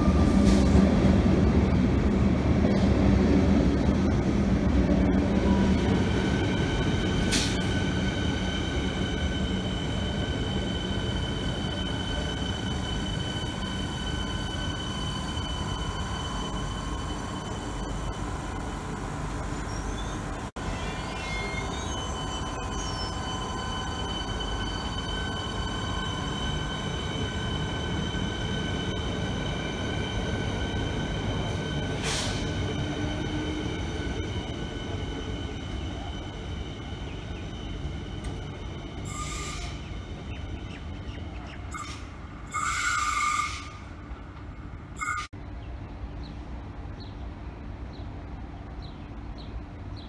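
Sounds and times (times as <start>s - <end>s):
rumble of train cars: 0.0s - 50.0s
train wheels squealing: 5.4s - 18.2s, 19.7s - 43.9s, 45.0s - 45.3s.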